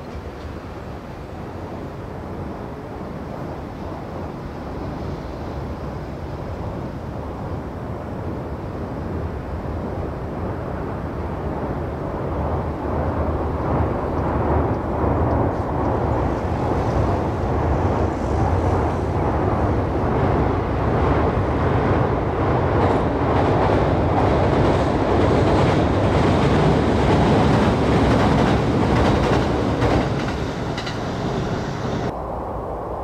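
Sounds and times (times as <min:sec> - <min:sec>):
train wheels rumbling on track: 0:09.0 - 0:32.2.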